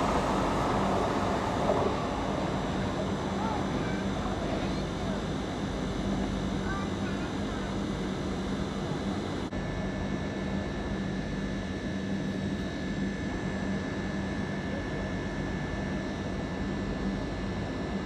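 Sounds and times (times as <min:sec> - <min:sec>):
distant train approaching: 0:00.0 - 0:06.3
electric railway hum and rumble: 0:00.0 - 0:18.0.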